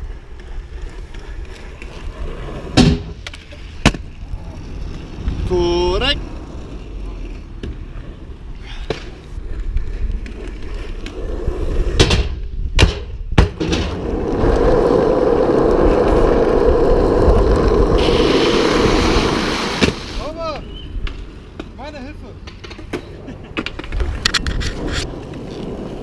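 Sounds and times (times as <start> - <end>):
skateboard wheels rolling on asphalt: 0.0 - 26.0
skateboard clacks: 22.4 - 26.0.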